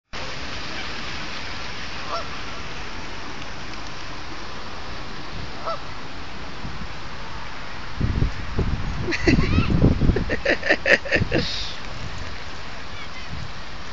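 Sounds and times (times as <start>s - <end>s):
goose honking: 2.0s - 2.3s, 5.6s - 5.8s.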